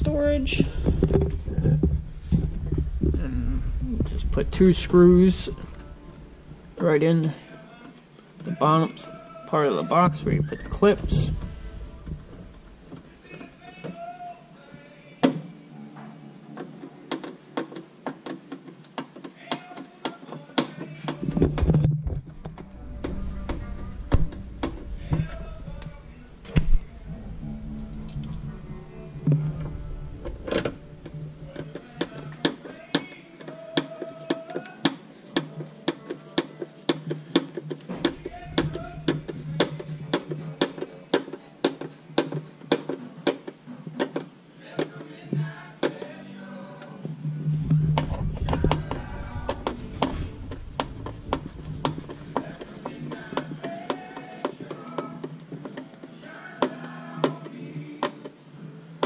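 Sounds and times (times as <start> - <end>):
low handling rumble: 0.0 - 7.2, 10.1 - 13.2, 22.1 - 32.0, 38.0 - 39.6, 47.6 - 52.4
radio music with drum beat: 0.0 - 14.3, 20.6 - 34.8, 37.8 - 41.1, 47.6 - 54.0.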